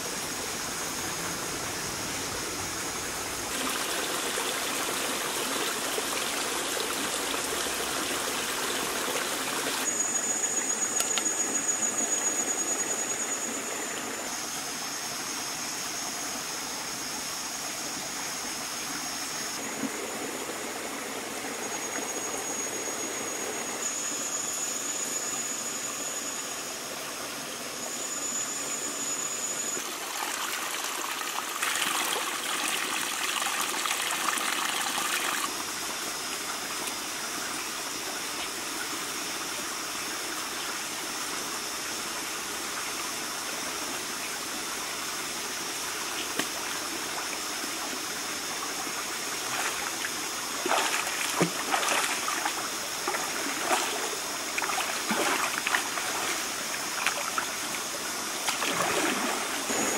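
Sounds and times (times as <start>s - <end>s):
water trickling: 48.8s - 59.7s
person wading and splashing: 50.6s - 57.4s, 58.4s - 59.7s.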